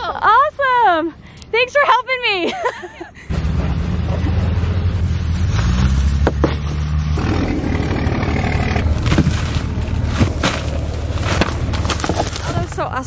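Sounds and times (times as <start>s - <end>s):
vehicle engine idling: 3.3s - 13.0s.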